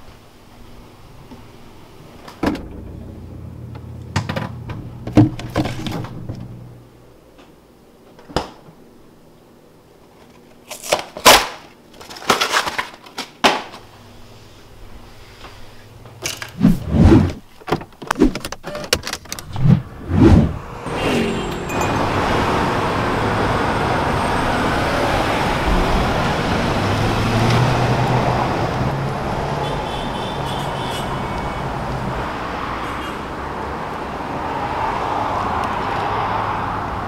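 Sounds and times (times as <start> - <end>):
low hum: 2.4 - 7.2, 19.3 - 26.3.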